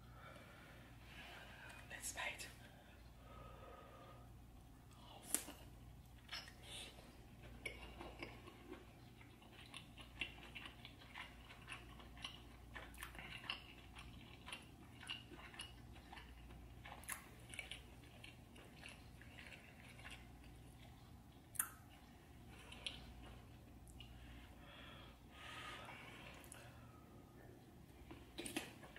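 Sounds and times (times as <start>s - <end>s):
person chewing food: 4.0s - 28.9s
wet mouth clicks and smacks: 21.4s - 22.0s.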